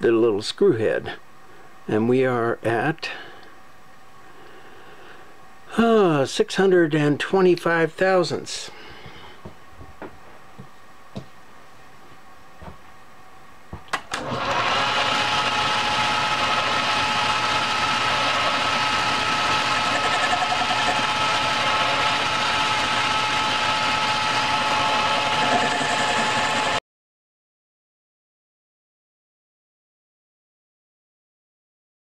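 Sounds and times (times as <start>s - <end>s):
metal lathe whining: 14.1s - 26.8s.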